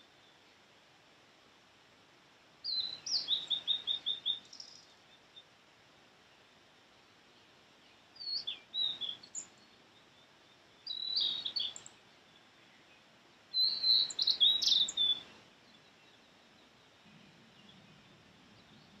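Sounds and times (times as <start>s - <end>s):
bird singing high whistled notes: 2.6s - 4.9s, 8.2s - 9.8s, 10.8s - 11.9s, 13.5s - 15.9s.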